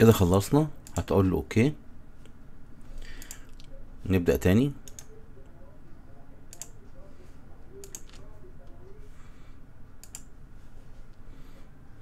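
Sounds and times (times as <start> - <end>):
computer mouse clicks: 3.0 - 3.8, 4.8 - 5.2, 6.5 - 6.8, 7.8 - 8.8, 10.0 - 10.3.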